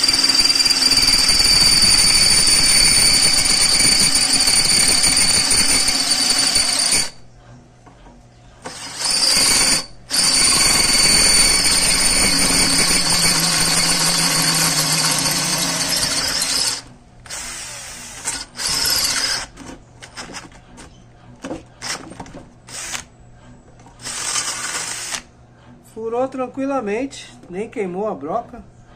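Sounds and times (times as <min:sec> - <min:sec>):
drill boring into steel: 0:00.0 - 0:07.2, 0:08.7 - 0:19.5, 0:22.7 - 0:23.0, 0:24.0 - 0:25.3.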